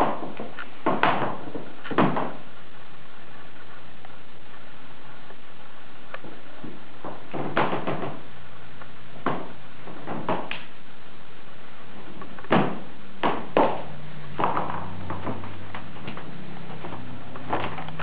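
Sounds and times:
knocks and thuds: 0:00.0 - 0:02.4, 0:06.6 - 0:08.2, 0:09.2 - 0:10.6, 0:12.4 - 0:18.0
faint low hum: 0:00.0 - 0:18.0
steady hiss: 0:00.0 - 0:18.0.

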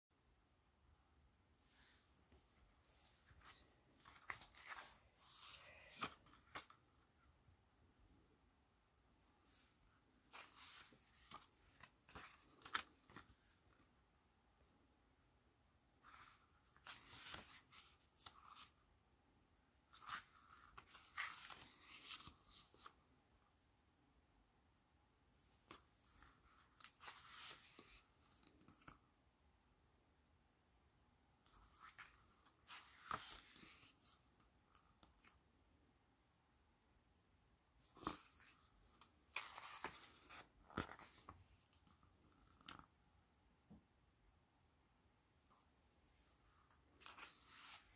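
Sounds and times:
book pages turning: 0:01.7 - 0:06.9, 0:09.6 - 0:13.8, 0:16.0 - 0:18.8, 0:19.9 - 0:23.0, 0:25.6 - 0:29.0, 0:31.5 - 0:35.4, 0:37.8 - 0:42.9, 0:46.5 - 0:47.9.

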